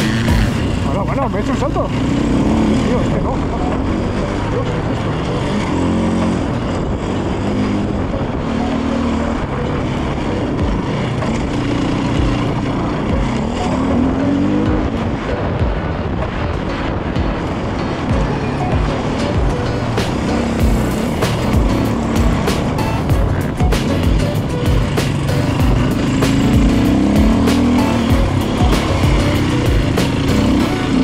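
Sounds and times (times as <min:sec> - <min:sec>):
dirt bike engine revving: 0:00.0 - 0:31.0.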